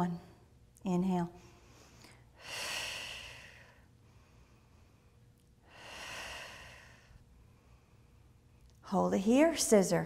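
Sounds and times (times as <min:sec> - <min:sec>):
woman breathing: 0:01.3 - 0:08.8.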